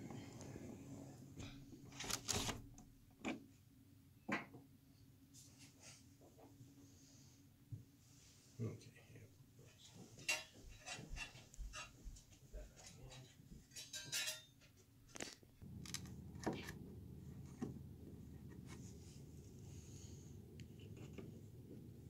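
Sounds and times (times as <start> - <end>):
low hum: 15.6 - 22.0.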